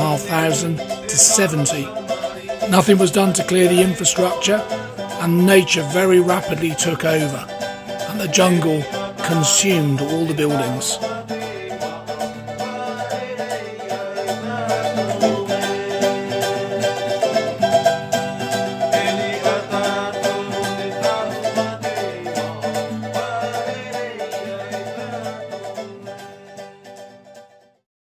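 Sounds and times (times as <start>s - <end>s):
plucked string instrumental music: 0.0s - 27.8s.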